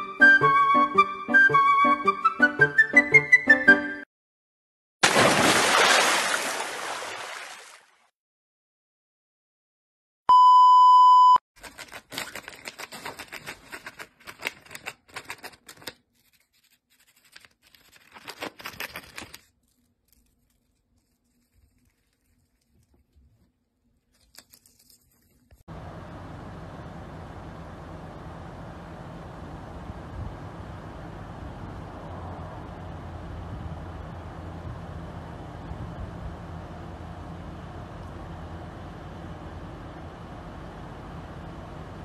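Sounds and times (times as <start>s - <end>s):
steady beep: 10.3s - 11.4s
paper bag crackling: 11.6s - 25.6s.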